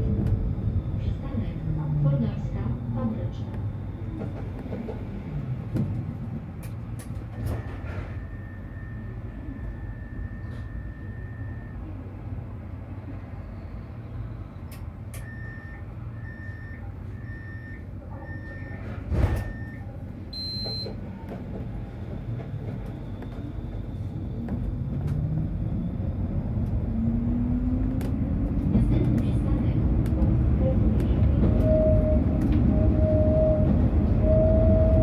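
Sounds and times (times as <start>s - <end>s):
short beeps: 19.4s - 21.0s
tram motors whining: 20.8s - 35.0s
door warning tone: 31.5s - 35.0s.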